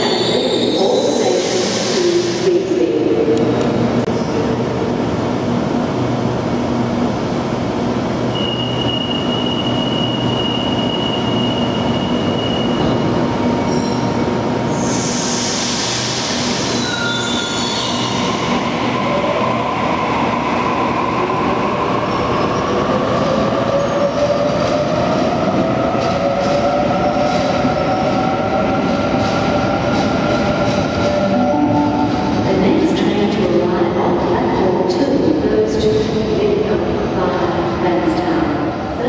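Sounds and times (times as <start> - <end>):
electrical hum of train: 0.0 - 39.0.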